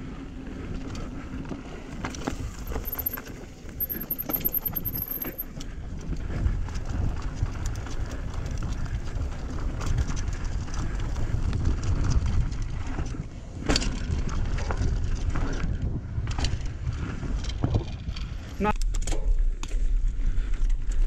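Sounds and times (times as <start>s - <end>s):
bike rattling: 0.0s - 21.0s
wind buffeting microphone: 5.5s - 18.6s.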